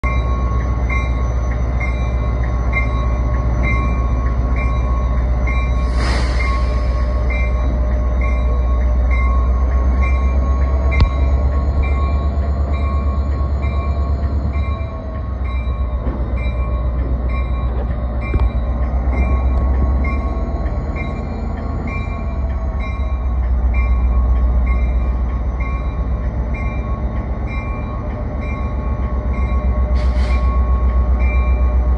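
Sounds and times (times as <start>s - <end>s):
diesel locomotive engine running: 0.0s - 31.9s
locomotive bell ringing: 0.0s - 31.9s
air hiss: 5.8s - 7.3s.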